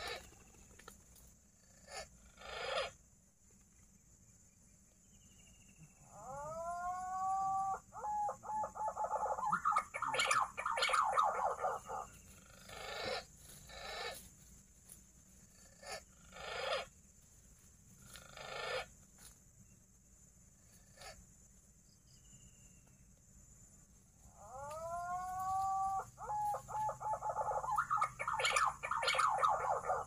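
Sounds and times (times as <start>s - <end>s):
pigeon whistling call: 7.2s - 12.1s, 24.6s - 30.0s.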